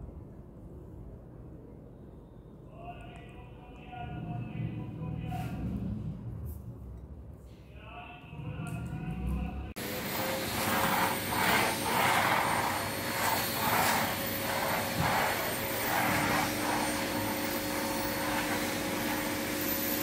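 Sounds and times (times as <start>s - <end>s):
vacuum cleaner running: 9.7s - 20.0s
vacuum nozzle on marble floor: 9.8s - 20.0s.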